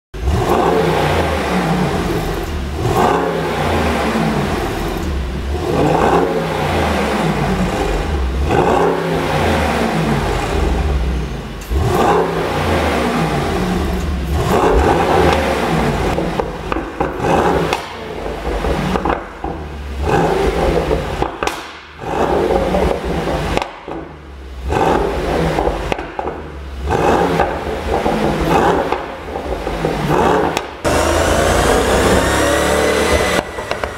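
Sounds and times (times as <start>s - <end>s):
car engine revving: 0.2s - 33.9s
exhaust pops and crackles: 14.0s - 30.9s.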